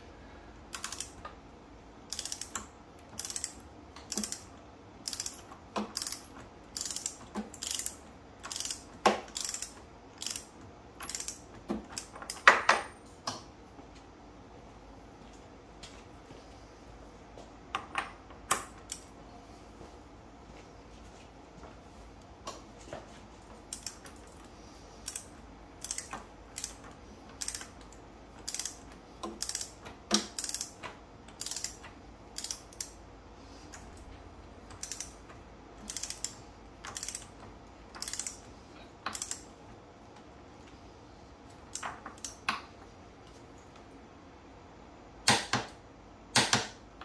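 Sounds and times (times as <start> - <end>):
torque wrench ratcheting: 0.7 - 1.2, 2.1 - 11.4, 25.0 - 26.8, 27.4 - 27.7, 28.4 - 28.8, 29.4 - 31.8, 32.4 - 33.0, 35.8 - 37.3, 38.0 - 38.4.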